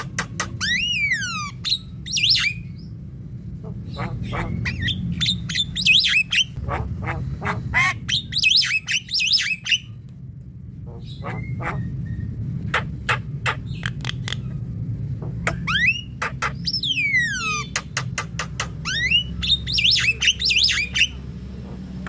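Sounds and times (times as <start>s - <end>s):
bird singing varied song: 0.0s - 3.0s, 3.6s - 6.8s, 7.8s - 10.0s, 15.2s - 22.0s
steady low hum: 0.0s - 22.0s.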